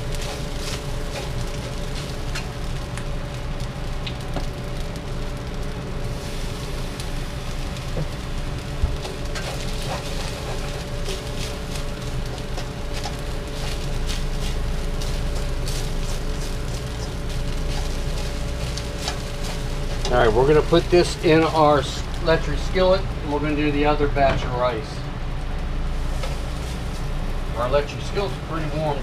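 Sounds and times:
rice sizzling in a wok: 0:00.0 - 0:23.8, 0:25.4 - 0:29.0.

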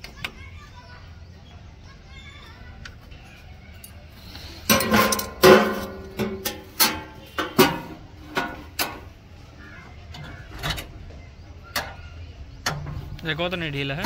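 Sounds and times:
hammer striking metal: 0:04.7 - 0:08.6.

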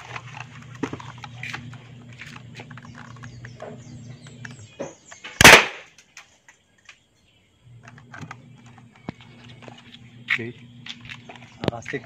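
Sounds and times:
low steady hum: 0:00.0 - 0:12.0
toy gun sharp bang: 0:05.4 - 0:05.9.

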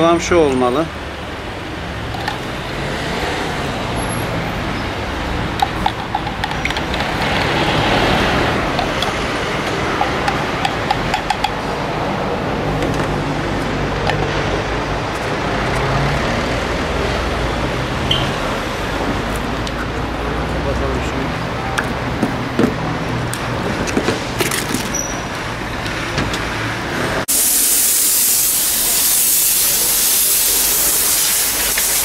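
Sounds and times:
road traffic: 0:00.0 - 0:32.0
vehicle passing: 0:01.0 - 0:24.4.

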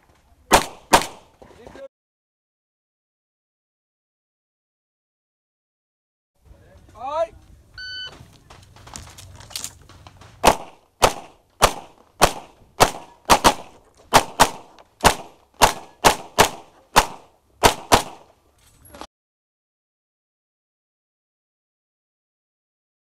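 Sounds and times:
pistol shots: 0:00.5 - 0:01.3, 0:10.4 - 0:18.3.

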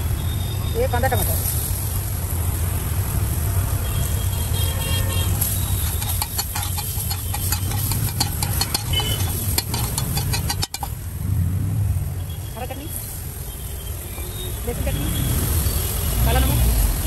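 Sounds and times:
metal spatula scraping griddle: 0:05.4 - 0:11.0
food sizzling: 0:05.4 - 0:11.2.

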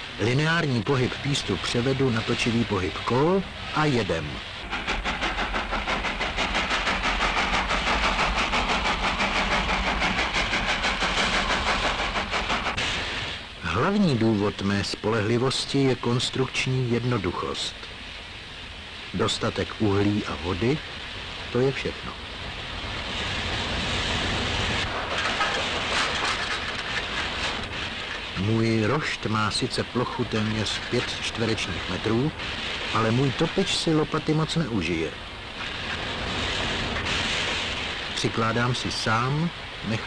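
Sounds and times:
steam locomotive chuffing: 0:00.0 - 0:13.8, 0:19.3 - 0:40.0
train rumble: 0:00.0 - 0:40.0
wheel clicks over rail joints: 0:25.0 - 0:28.3.

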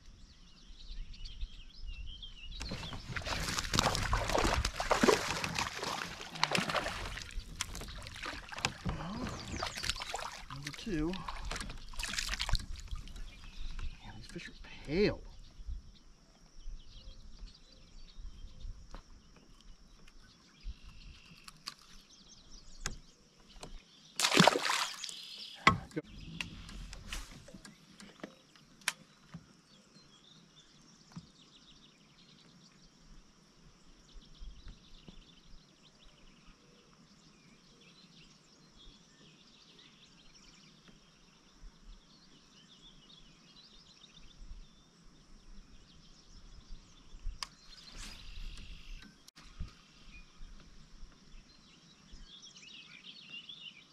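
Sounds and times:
water sloshing against kayak: 0:02.6 - 0:14.2, 0:22.6 - 0:29.6.

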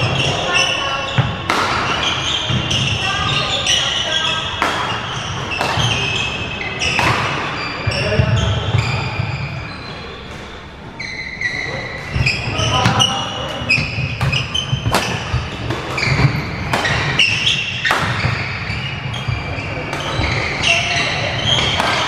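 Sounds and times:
shoes squeaking on wooden floor: 0:00.0 - 0:22.0
rackets striking shuttlecock: 0:04.2 - 0:07.6, 0:13.7 - 0:18.9, 0:21.4 - 0:22.0.

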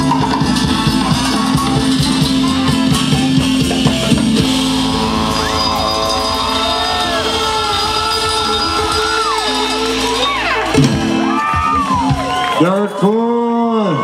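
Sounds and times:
crowd shouting and whooping: 0:00.0 - 0:14.0
live band playing loud music: 0:00.0 - 0:14.0.

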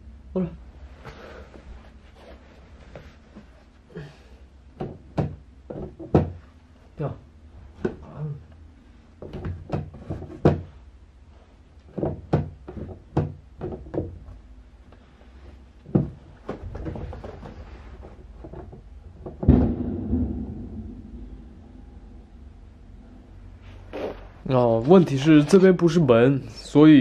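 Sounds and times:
loud thump: 0:19.4 - 0:22.8.

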